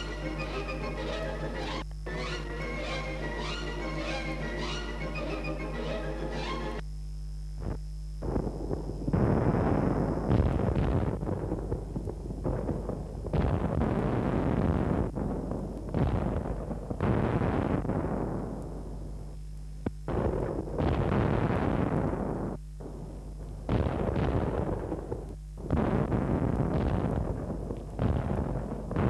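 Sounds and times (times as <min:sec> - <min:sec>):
heavy explosion blasts: 0:08.2 - 0:18.9, 0:20.0 - 0:29.0.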